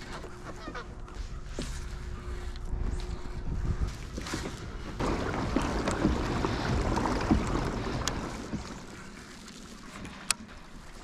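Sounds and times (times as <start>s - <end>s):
water sloshing against kayak hull: 0.0s - 11.0s
wind on microphone: 2.0s - 8.9s.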